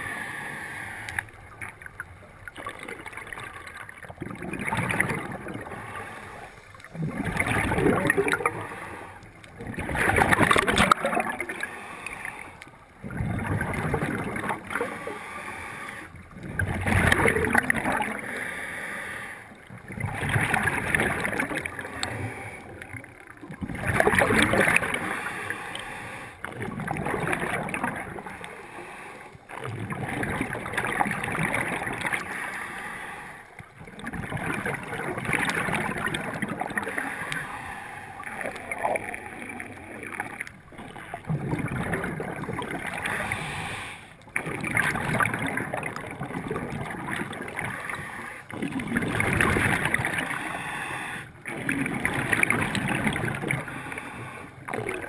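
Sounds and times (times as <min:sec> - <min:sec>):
diver breathing through regulator: 0:00.0 - 0:01.3, 0:05.4 - 0:06.8, 0:08.3 - 0:09.4, 0:11.5 - 0:12.6, 0:14.7 - 0:16.2, 0:18.1 - 0:19.6, 0:21.8 - 0:22.8, 0:24.8 - 0:26.5, 0:28.2 - 0:29.5, 0:32.1 - 0:33.6, 0:36.8 - 0:39.7, 0:42.9 - 0:44.2, 0:50.0 - 0:51.5, 0:52.7 - 0:54.8
underwater bubbling: 0:00.0 - 0:55.0.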